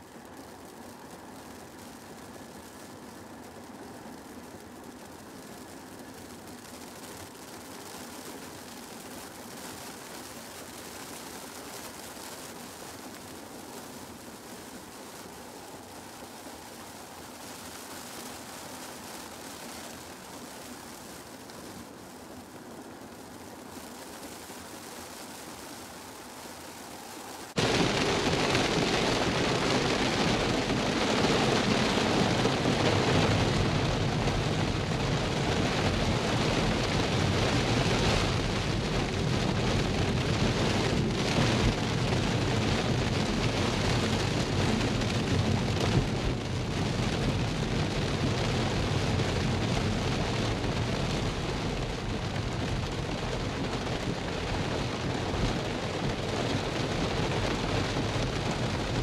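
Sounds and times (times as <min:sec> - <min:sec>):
rain on car roof: 0:00.0 - 0:59.0
tyre noise on wet road: 0:00.0 - 0:59.0.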